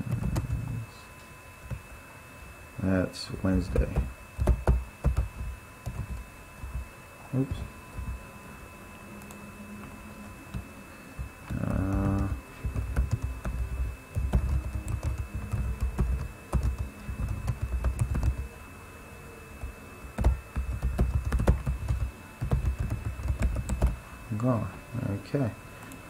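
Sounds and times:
typing on keyboard: 0:00.1 - 0:00.6, 0:03.8 - 0:06.2, 0:11.5 - 0:18.4, 0:20.2 - 0:24.0.

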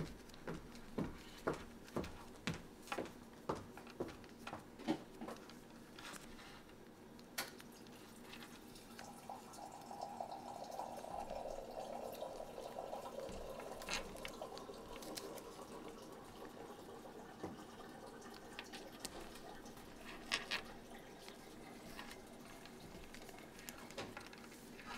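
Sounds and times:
paper crinkling: 0:03.7 - 0:09.0, 0:12.6 - 0:16.0, 0:18.3 - 0:24.9.

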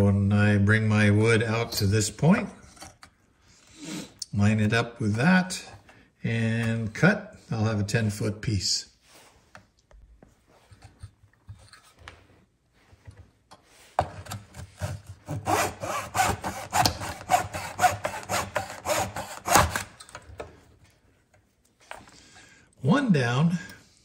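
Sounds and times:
saw cutting wood: 0:14.6 - 0:20.0.

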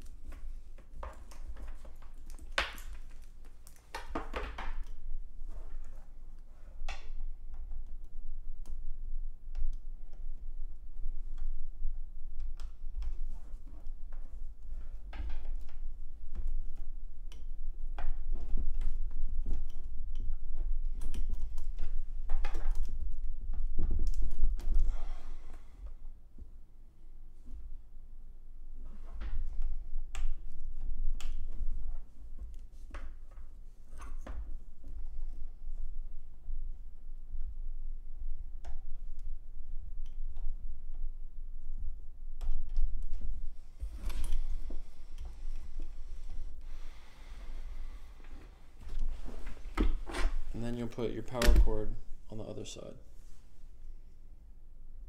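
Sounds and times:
cables rustling: 0:42.6 - 0:53.8.

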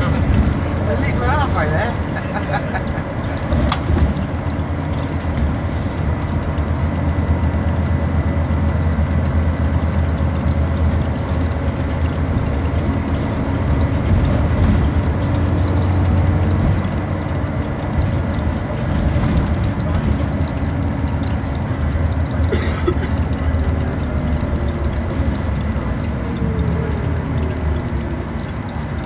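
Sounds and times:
bus engine drone: 0:00.0 - 0:29.0.

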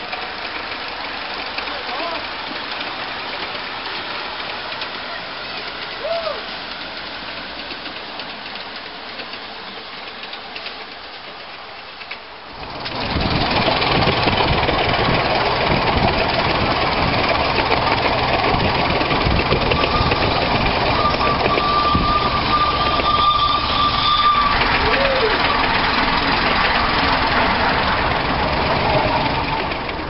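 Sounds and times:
steam locomotive passing: 0:00.0 - 0:30.0
train running noise: 0:00.0 - 0:30.0
steady high tone: 0:16.3 - 0:29.6.

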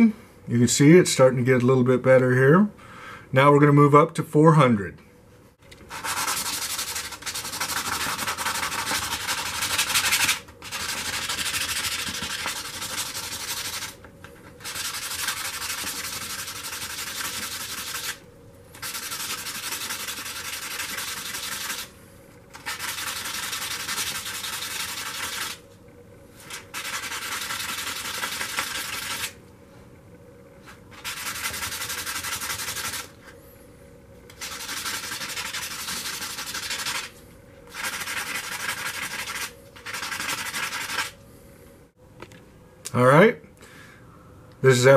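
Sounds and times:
metal rubbed on sandpaper: 0:05.9 - 0:14.0, 0:14.6 - 0:18.2, 0:18.8 - 0:21.9, 0:22.5 - 0:25.6, 0:26.4 - 0:29.4, 0:30.9 - 0:33.2, 0:34.3 - 0:37.1, 0:37.7 - 0:41.2.

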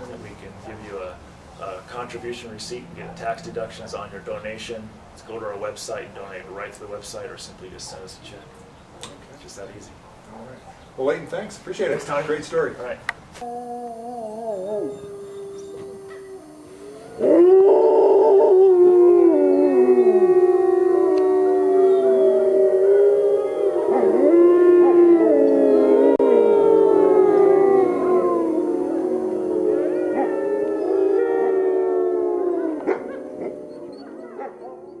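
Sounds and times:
wolves howling in chorus: 0:13.5 - 0:35.0.

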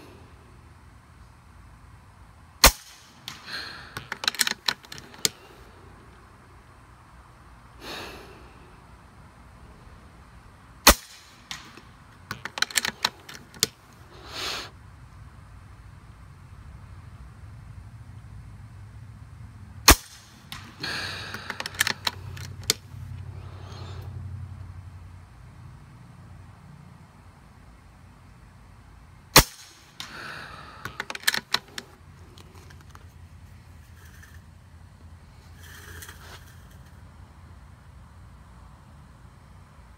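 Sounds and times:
air rifle shot: 0:02.6 - 0:05.4, 0:10.8 - 0:13.2, 0:19.8 - 0:22.1, 0:29.3 - 0:31.7
metallic clicks of rifle action: 0:02.6 - 0:05.5, 0:10.9 - 0:13.8, 0:20.0 - 0:22.9, 0:30.8 - 0:33.1
short breath out: 0:14.1 - 0:14.7, 0:20.8 - 0:22.0, 0:30.0 - 0:31.1.

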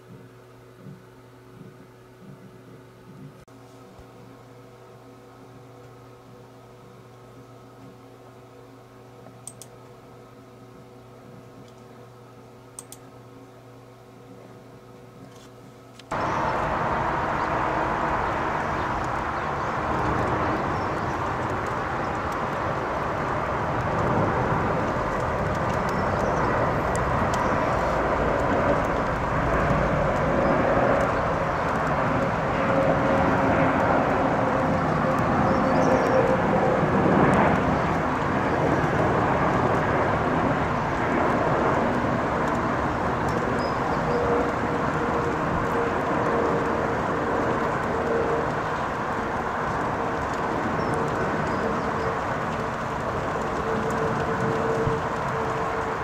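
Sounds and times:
jet airliner rumble overhead: 0:13.6 - 0:56.0.

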